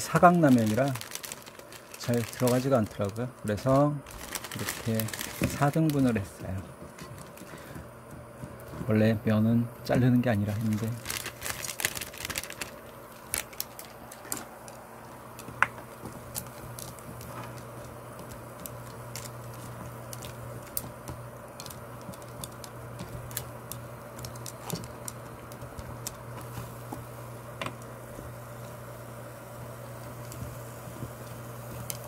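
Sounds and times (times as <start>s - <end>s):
low steady hum: 0.0s - 32.0s.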